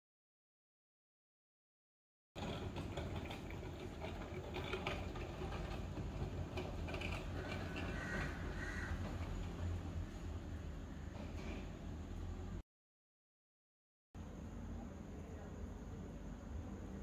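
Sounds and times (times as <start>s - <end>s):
low background hum: 14.2s - 17.0s.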